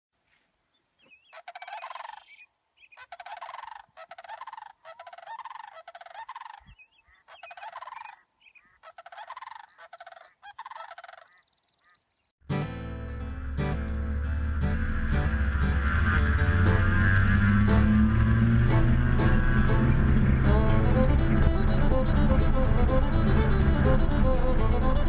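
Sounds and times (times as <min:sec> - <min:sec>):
bird rattling calls: 0:01.1 - 0:12.0
guitar music: 0:12.4 - 0:25.0.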